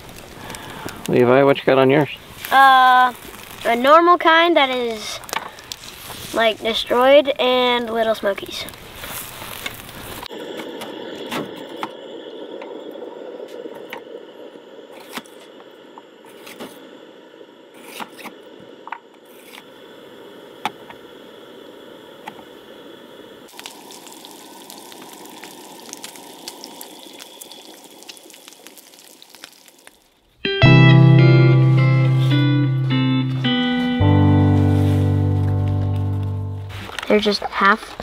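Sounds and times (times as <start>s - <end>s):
fire popping: 0.0s - 11.8s, 23.4s - 30.4s
campfire crackling: 0.0s - 38.0s.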